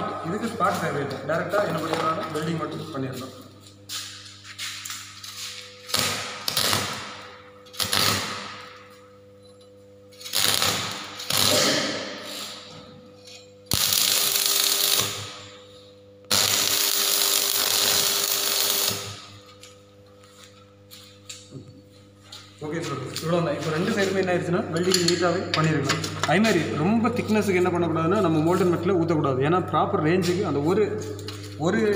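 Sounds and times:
steady low hum: 0.0 - 31.9
welding arc crackling and hissing: 3.9 - 8.8, 10.2 - 12.8, 13.7 - 15.6, 16.2 - 19.6.

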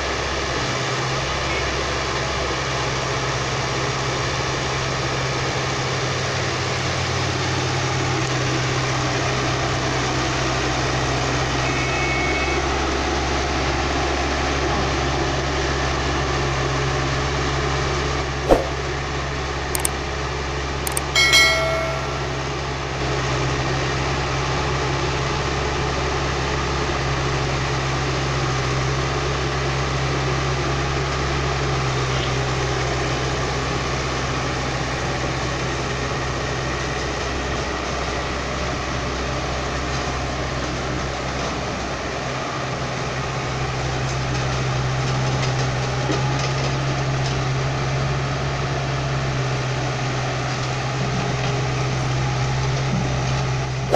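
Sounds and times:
excavator diesel engine running: 0.0 - 53.9
sharp clicks: 20.9 - 21.2
ringing chime: 20.9 - 22.7.

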